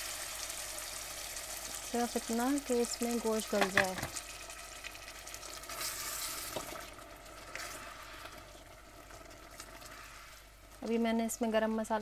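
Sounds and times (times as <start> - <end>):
curry sizzling and bubbling: 0.0 - 12.0
spoon stirring in saucepan: 5.8 - 11.9.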